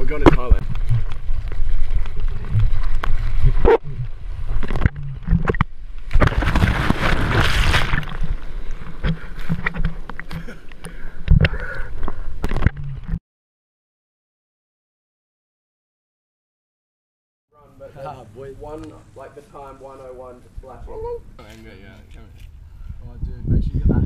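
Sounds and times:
water sloshing and splashing: 0:00.6 - 0:10.8
crashing whitewater: 0:06.1 - 0:08.4.

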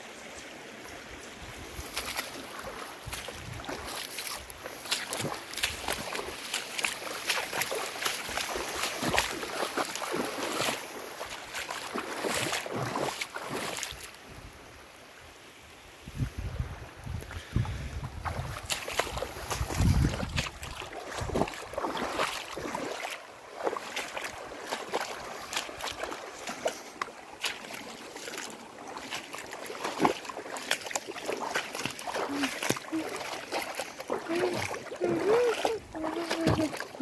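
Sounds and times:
floodwater running and splashing: 0:00.0 - 0:14.9, 0:17.1 - 0:37.0
wind rumbling on microphone: 0:01.4 - 0:06.2, 0:16.0 - 0:22.8.

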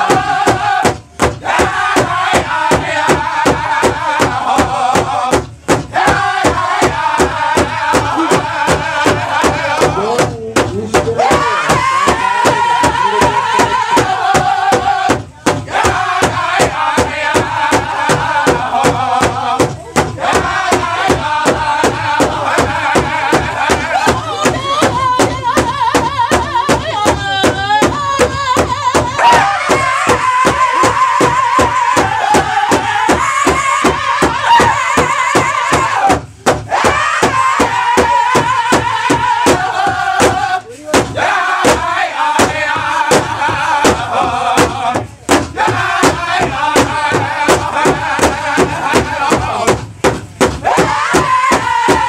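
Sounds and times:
large drum beating fast: 0:00.0 - 0:52.0
men singing in high strained style: 0:00.0 - 0:52.0.

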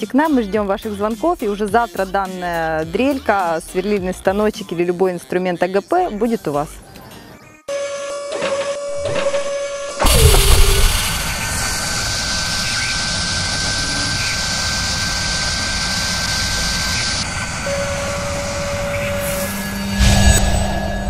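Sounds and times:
drill whirring with high whine: 0:07.8 - 0:20.4
loud low hit: 0:10.0 - 0:13.2.

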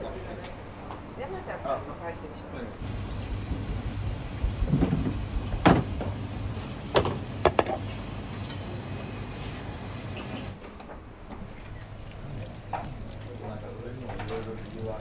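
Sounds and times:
steady low hum: 0:02.8 - 0:10.6
kitchen utensils knocking and clattering: 0:06.9 - 0:09.0.

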